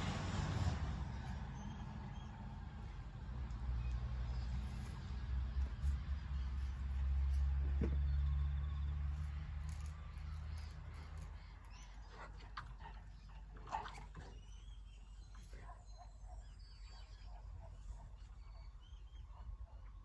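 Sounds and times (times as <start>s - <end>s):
small birds chirping: 3.8s - 19.6s.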